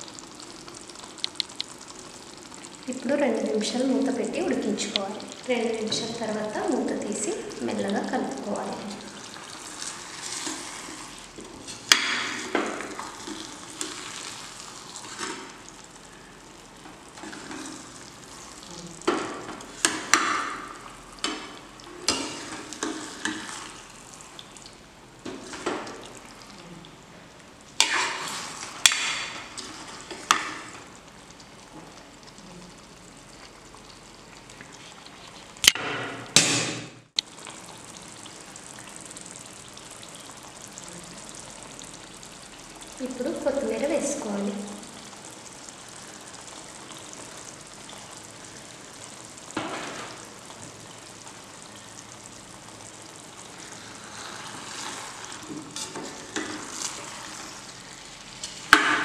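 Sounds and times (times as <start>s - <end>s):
curry sizzling: 0.0s - 59.0s
metal spatula scraping a pan: 9.6s - 12.5s, 15.0s - 15.5s, 22.0s - 23.7s, 27.8s - 30.6s, 53.7s - 57.6s.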